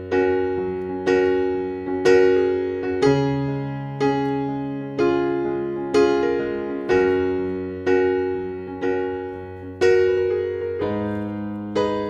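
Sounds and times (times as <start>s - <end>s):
soft piano chords ringing: 0.0s - 12.0s.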